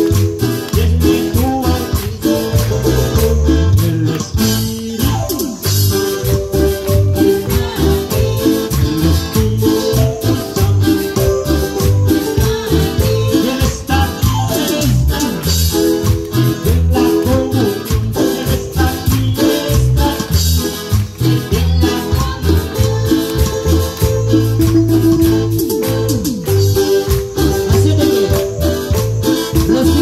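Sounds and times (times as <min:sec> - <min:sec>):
live band playing church music: 0:00.0 - 0:30.0
rattle beat: 0:00.0 - 0:30.0.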